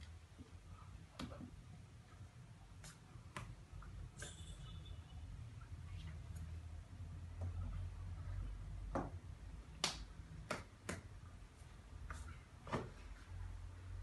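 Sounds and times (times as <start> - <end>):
hands clicking and slapping: 9.7 - 11.2.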